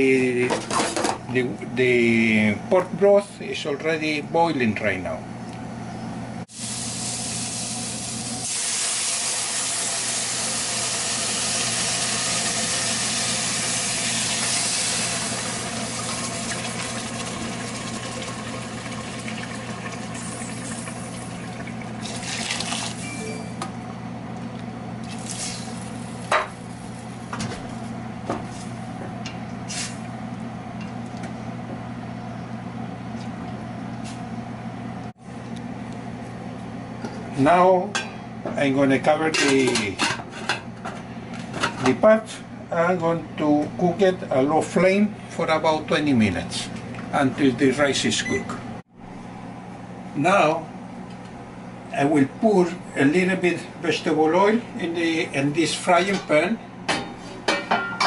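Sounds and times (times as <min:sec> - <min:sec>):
broth hissing and sizzling in pot: 0:06.5 - 0:23.1, 0:25.0 - 0:26.3.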